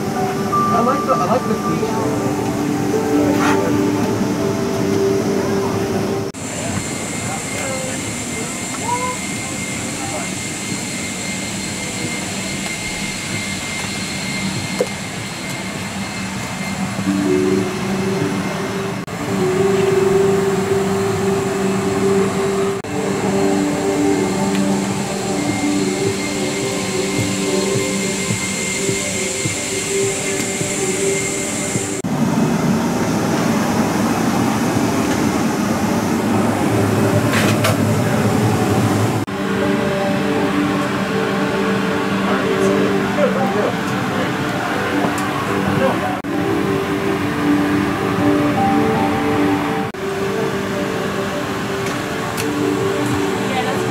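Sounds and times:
faint high tone: 0:00.0 - 0:10.4.

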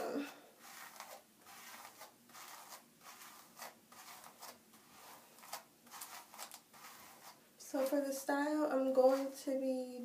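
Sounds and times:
brush strokes through hair: 0:00.0 - 0:09.6.

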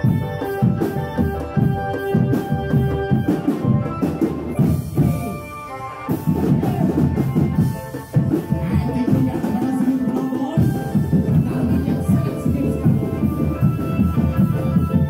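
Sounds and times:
held melodic tones: 0:00.0 - 0:15.0
marching drum band playing: 0:00.0 - 0:15.0.

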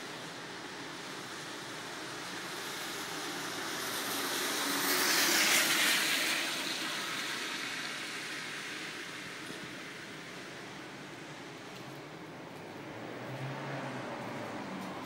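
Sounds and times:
vehicle passing by: 0:12.8 - 0:15.0.

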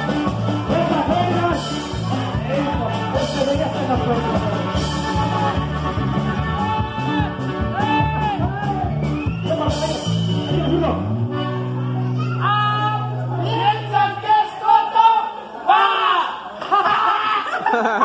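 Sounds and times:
drum kit: 0:00.0 - 0:11.0
electric bass: 0:00.0 - 0:14.6.

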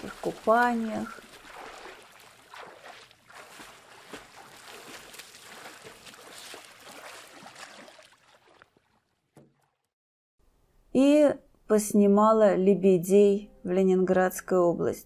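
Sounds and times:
water sloshing and splashing: 0:00.0 - 0:09.9.

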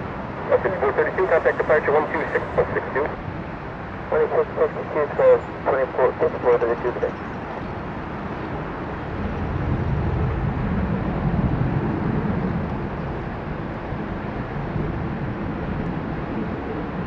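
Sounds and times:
distant jet engine rumble: 0:00.0 - 0:17.0.

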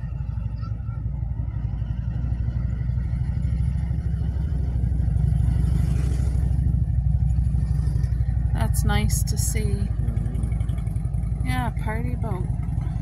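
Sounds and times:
motorboat engine droning: 0:00.0 - 0:13.0.

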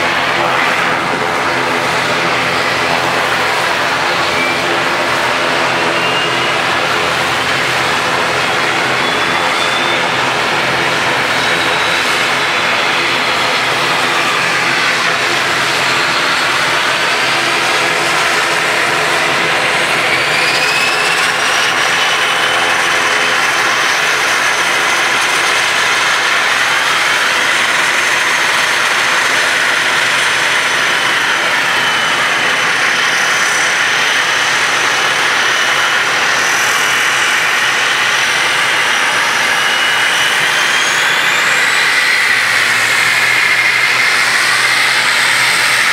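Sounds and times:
engine and propeller noise: 0:00.0 - 0:45.9
high turbine whine rising: 0:00.0 - 0:45.9.

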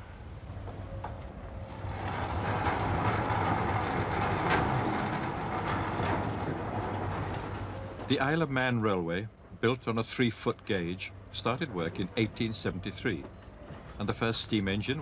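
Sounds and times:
wooden sliding doors rumbling and scraping: 0:00.5 - 0:08.5.

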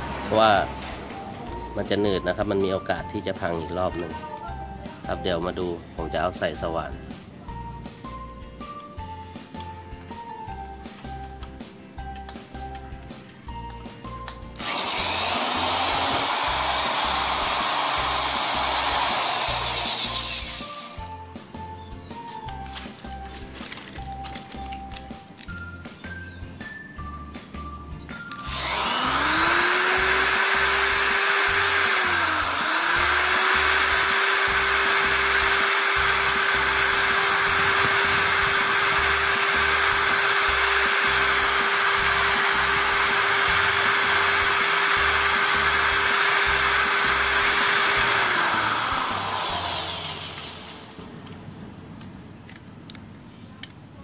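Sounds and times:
background music: 0:00.0 - 0:51.2
electric drill whining: 0:13.6 - 0:21.4, 0:28.2 - 0:51.0.

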